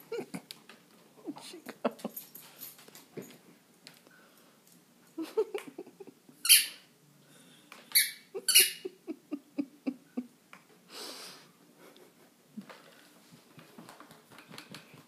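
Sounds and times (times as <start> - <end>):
squeaky ball squeaking: 6.4 - 6.8, 7.9 - 8.8.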